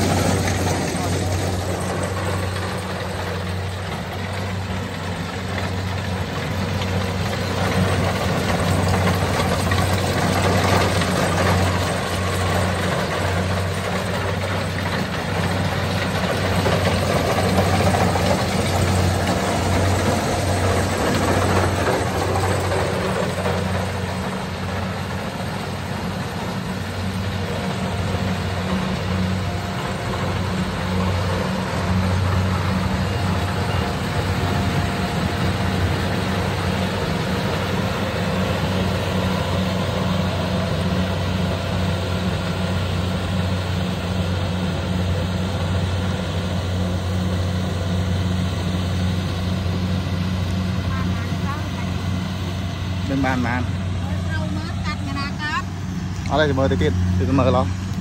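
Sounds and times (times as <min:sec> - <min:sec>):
threshing machinery clatter: 0:00.0 - 0:43.6
combine harvester running: 0:00.0 - 0:58.0
low diesel hum: 0:00.0 - 0:58.0.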